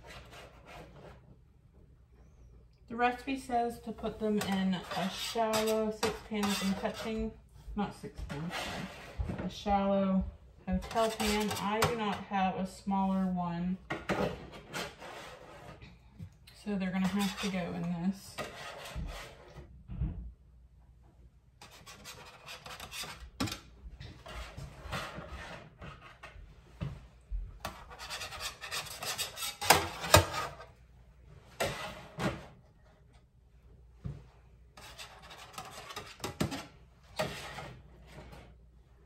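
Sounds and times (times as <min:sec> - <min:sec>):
utensil scraping baking pans: 0:00.0 - 0:01.3, 0:03.0 - 0:10.0, 0:10.7 - 0:15.8, 0:16.6 - 0:19.7, 0:21.6 - 0:26.4, 0:27.6 - 0:30.8, 0:31.5 - 0:32.6, 0:34.8 - 0:38.6.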